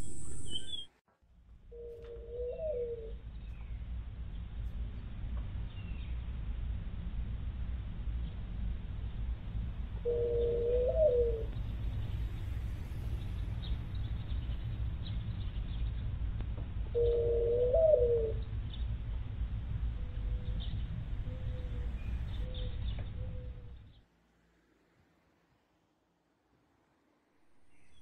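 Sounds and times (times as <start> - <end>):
low rumble: 3.1 - 28.0
bird calling: 10.0 - 11.6, 16.9 - 18.5.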